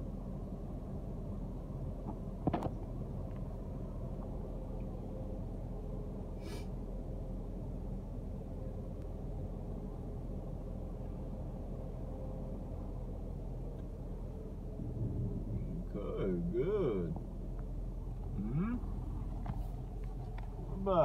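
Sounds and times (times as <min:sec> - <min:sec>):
brief hiss: 0:06.4 - 0:06.7
car cabin rumble: 0:13.0 - 0:21.0.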